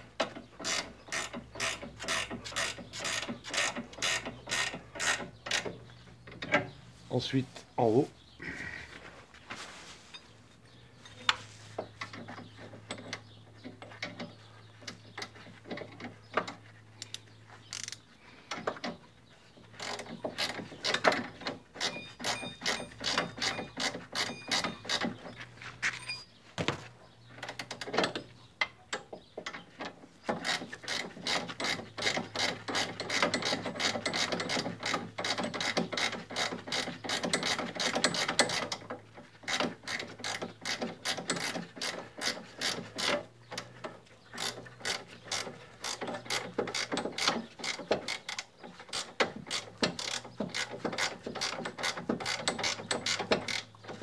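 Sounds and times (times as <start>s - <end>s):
ratchet wrench clicking: 17.0s - 18.0s.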